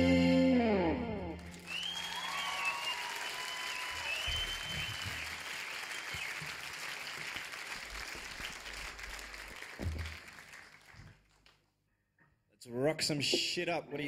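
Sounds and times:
audience applauding: 1.4 - 11.6.

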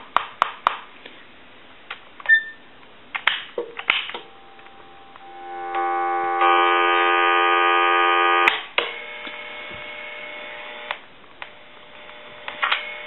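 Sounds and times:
buzzy telephone line tone: 4.2 - 8.5
quieter steady tone: 4.2 - 8.5.

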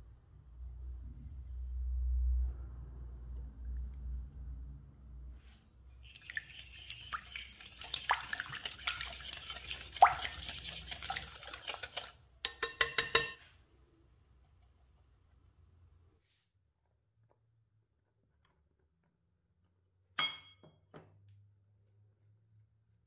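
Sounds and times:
whisk clinking against glass bowl: 6.1 - 13.5.

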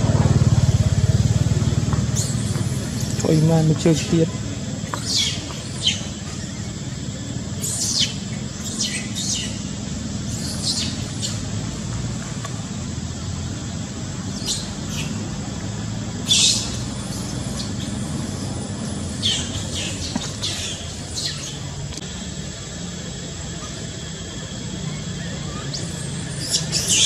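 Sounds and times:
steady low hum: 0.0 - 27.0
baby monkey squealing: 5.0 - 6.6, 7.6 - 9.7, 10.3 - 11.4, 25.2 - 27.0.

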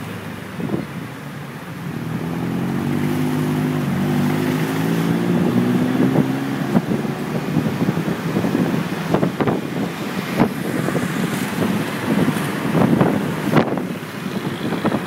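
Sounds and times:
road and wind noise: 0.0 - 15.0
vehicle engine hum: 0.0 - 15.0.

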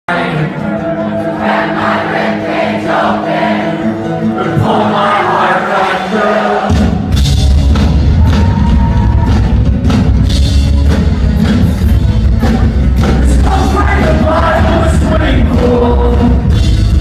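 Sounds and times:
crowd singing together: 0.1 - 7.1, 12.4 - 16.7
acoustic guitar: 0.1 - 17.0
drums and bass: 6.6 - 17.0.

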